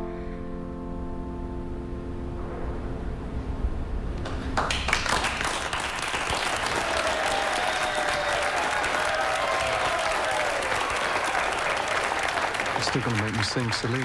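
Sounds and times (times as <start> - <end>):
guests applauding: 4.2 - 14.0.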